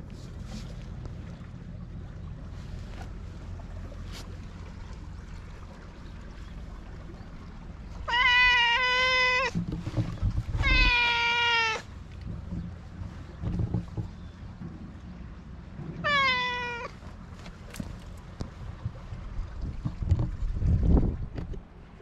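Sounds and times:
cat meowing: 8.1s - 9.6s, 10.6s - 11.9s, 16.0s - 17.0s.

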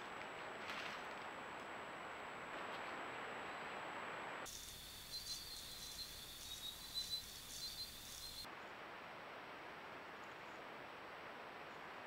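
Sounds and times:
steady background hiss: 0.0s - 12.0s
insects trilling: 4.5s - 8.5s.

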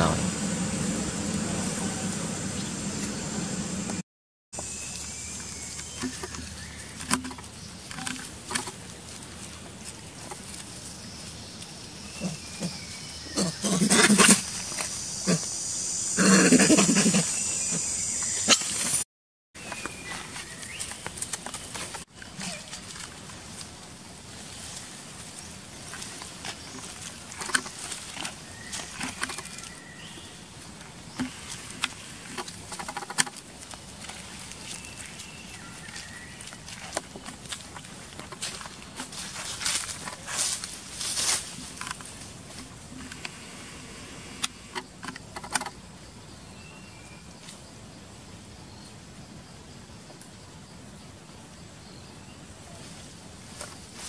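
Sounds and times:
steady outdoor hiss: 0.0s - 4.0s, 4.6s - 19.0s, 19.6s - 54.0s
dry leaves crackling underfoot: 19.6s - 42.8s.

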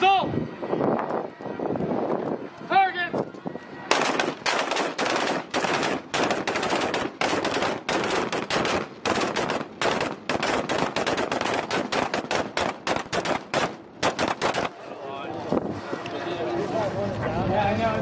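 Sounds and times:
rapid gunfire: 3.9s - 14.8s.

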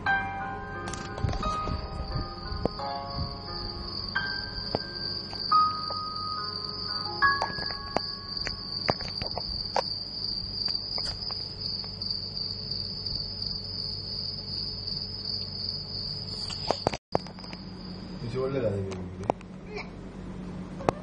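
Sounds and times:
steady high-pitched tone: 0.0s - 9.8s.

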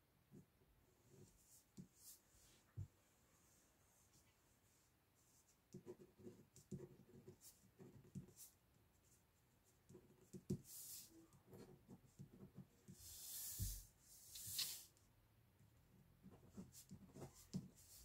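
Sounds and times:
pen scratching on paper: 5.7s - 8.6s
brushing rustle across paper: 13.0s - 14.9s.

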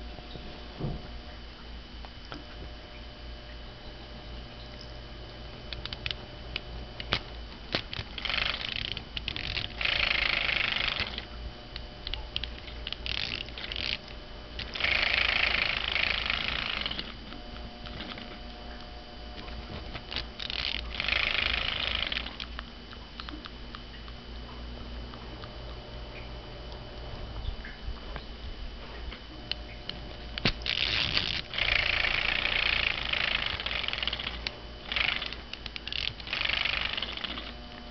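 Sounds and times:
plush toy buzzing: 5.7s - 22.6s, 30.1s - 37.9s
small clicks: 5.7s - 24.2s, 29.1s - 37.9s.

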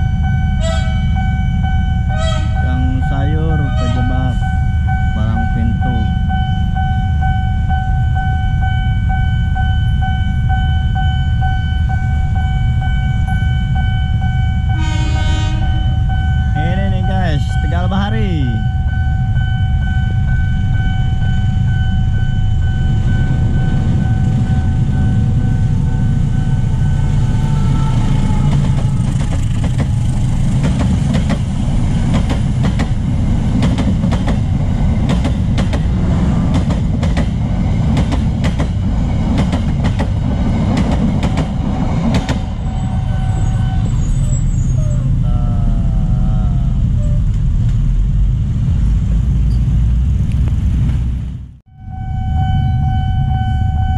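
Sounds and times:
crossing warning signal ringing: 0.0s - 37.4s, 39.7s - 45.2s, 51.6s - 53.9s
train rumbling past: 0.0s - 53.9s
train wheels clacking on rail joints: 28.4s - 42.6s.

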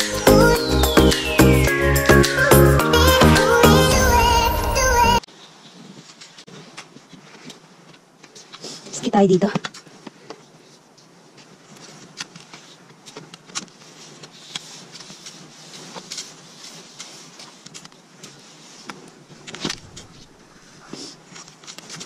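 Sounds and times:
skis swishing through snow: 10.5s - 22.0s
ski poles clicking: 11.7s - 22.0s.

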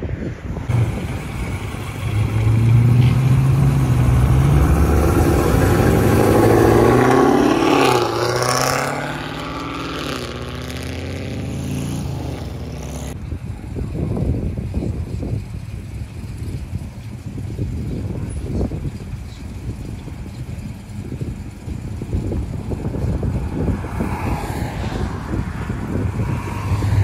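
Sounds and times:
car engine passing: 0.6s - 13.2s, 22.3s - 27.0s.

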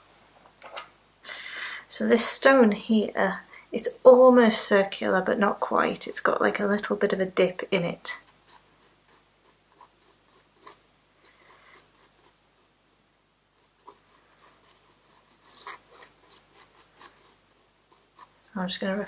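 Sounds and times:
pencil sketching on paper: 8.4s - 19.0s.

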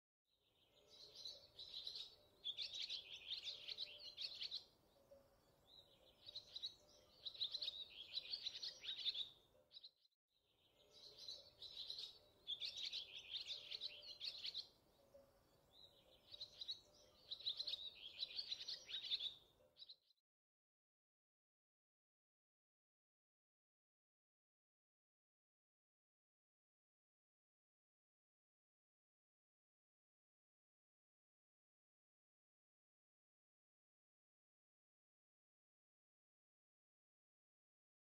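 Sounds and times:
birds chirping: 0.6s - 10.0s, 10.6s - 20.0s.

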